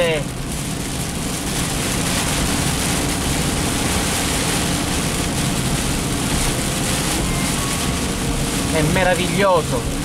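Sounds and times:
car engine hum: 0:00.0 - 0:10.0
heavy rain drumming on car roof: 0:00.0 - 0:10.0
tyres on wet road: 0:00.0 - 0:10.0.

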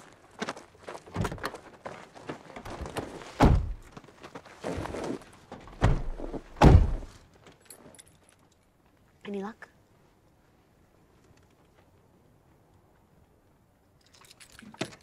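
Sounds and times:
car doors thunking shut: 0:03.4 - 0:03.8, 0:05.8 - 0:07.1.

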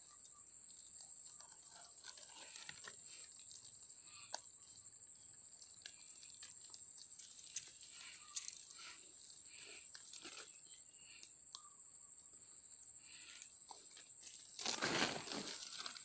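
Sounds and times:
plastic sack rustling: 0:14.4 - 0:16.0.

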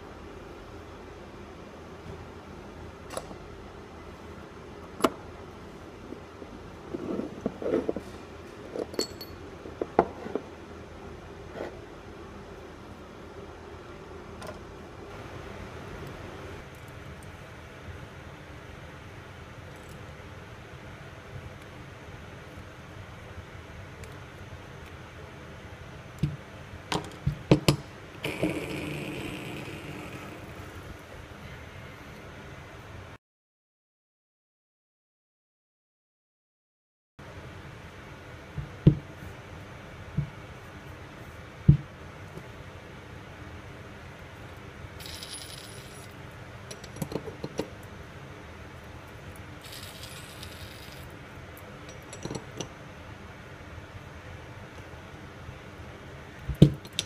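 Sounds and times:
steady background hiss: 0:00.0 - 0:33.2, 0:37.2 - 0:57.0
metallic ring: 0:08.9 - 0:09.4, 0:45.0 - 0:46.2, 0:49.6 - 0:51.1.

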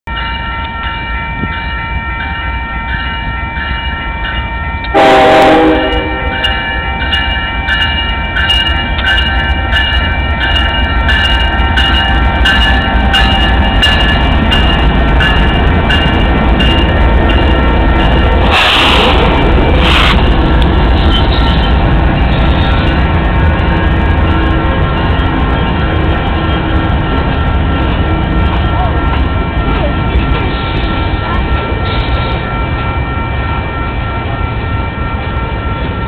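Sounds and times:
crossing bell ringing: 0:00.0 - 0:36.0
freight train passing: 0:00.1 - 0:36.0
locomotive horn blast: 0:04.9 - 0:06.5.

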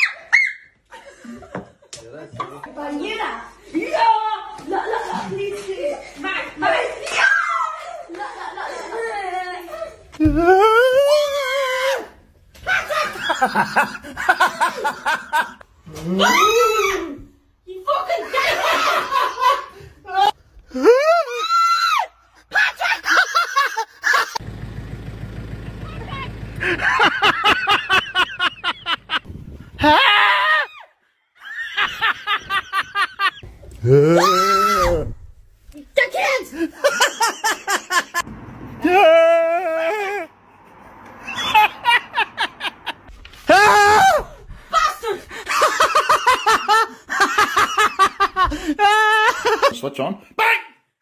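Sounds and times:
bursts of laughter: 0:10.5 - 0:15.6, 0:18.1 - 0:21.4, 0:22.4 - 0:24.4, 0:26.6 - 0:30.7, 0:36.4 - 0:40.3, 0:41.2 - 0:50.4
rapid pulsing laughter: 0:26.6 - 0:29.2
high-pitched scream: 0:33.8 - 0:35.1.

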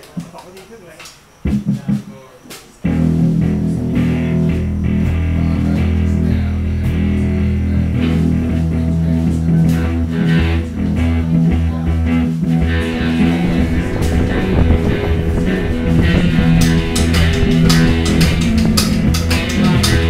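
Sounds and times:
bass guitar low notes: 0:02.9 - 0:20.0
electric guitar rock riff: 0:02.9 - 0:20.0
drum hits: 0:12.8 - 0:20.0.

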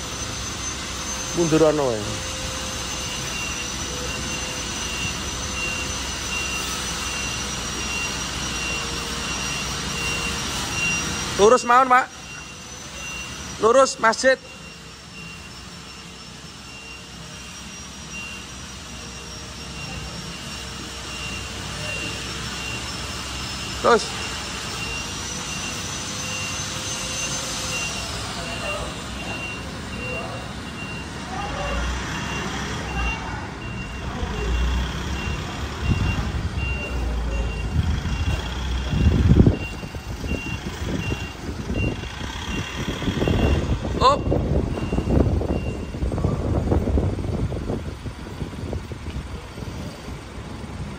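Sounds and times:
electronic warning beeps: 0:00.0 - 0:47.1
bus diesel engine at low revs: 0:00.0 - 0:50.9.

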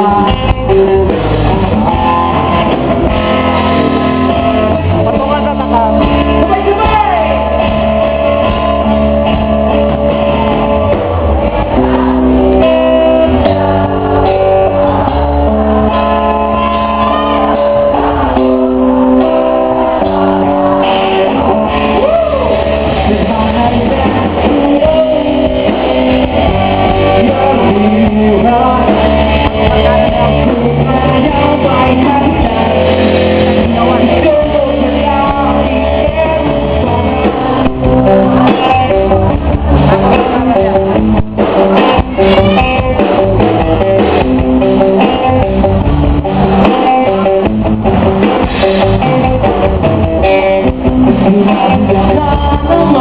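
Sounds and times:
person singing: 0:00.0 - 0:08.5, 0:19.1 - 0:45.6, 0:48.2 - 0:53.0
bass: 0:00.0 - 0:53.0
guitar: 0:00.0 - 0:53.0.

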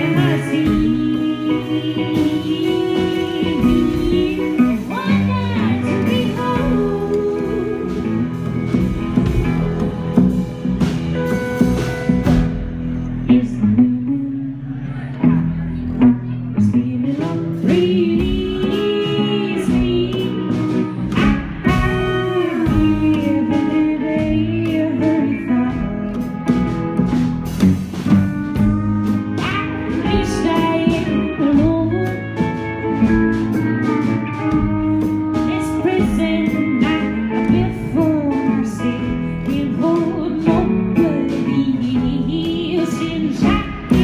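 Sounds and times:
woman singing: 0:00.0 - 0:09.4, 0:13.2 - 0:15.4, 0:16.3 - 0:26.8, 0:28.6 - 0:44.0
electric guitar: 0:00.0 - 0:44.0
plucked upright bass: 0:00.0 - 0:44.0.

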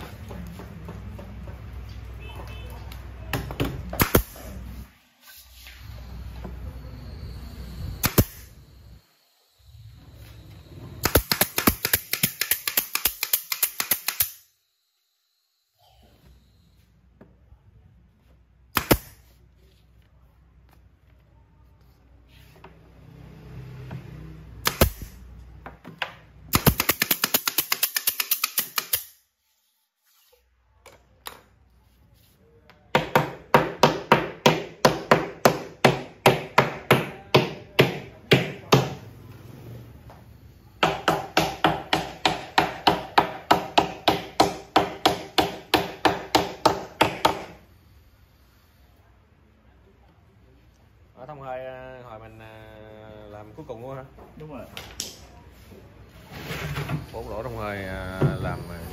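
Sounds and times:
hammer nailing wood: 0:11.0 - 0:14.4, 0:18.7 - 0:19.1, 0:24.6 - 0:25.1, 0:25.9 - 0:29.1, 0:32.9 - 0:39.0, 0:40.8 - 0:47.6.

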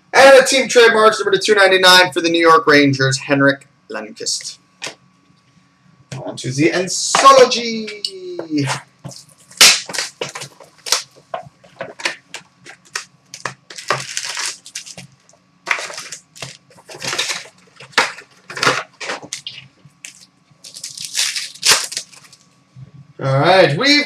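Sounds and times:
card pack wrappers crinkling: 0:09.1 - 0:22.5
tearing rustles: 0:12.0 - 0:22.4.

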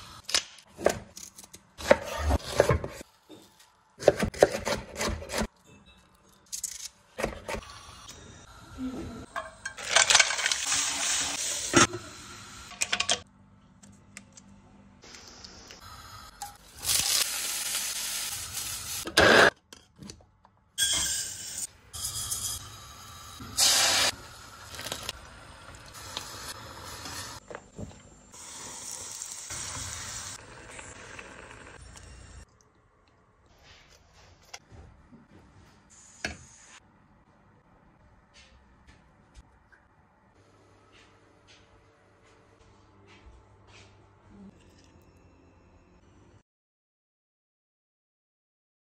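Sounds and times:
sizzling in a pan: 0:10.3 - 0:12.7, 0:15.8 - 0:19.5, 0:21.2 - 0:27.4, 0:28.3 - 0:32.4.

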